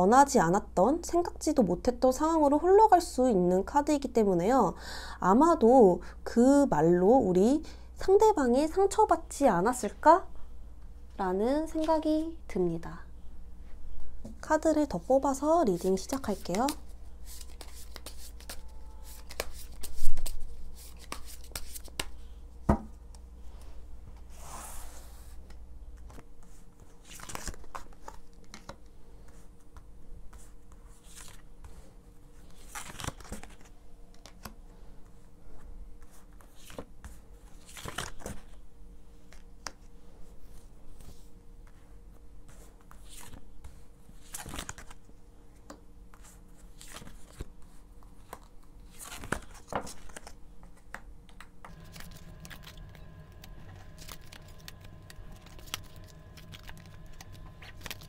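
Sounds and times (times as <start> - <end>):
cards shuffled and slid: 16.1 - 22.2, 31.0 - 31.8, 51.7 - 58.0.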